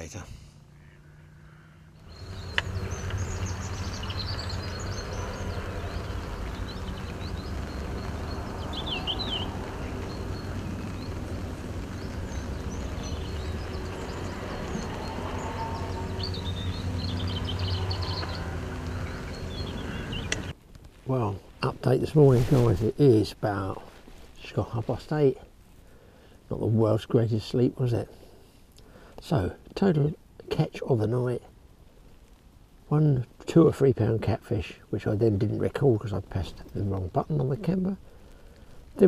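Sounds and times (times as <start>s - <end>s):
steady low rumble: 0.0s - 23.7s
small birds chirping: 0.0s - 28.0s, 32.1s - 39.0s.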